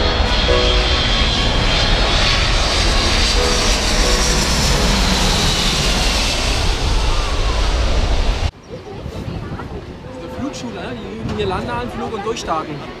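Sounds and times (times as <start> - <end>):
jet engines passing overhead: 0.0 - 8.6.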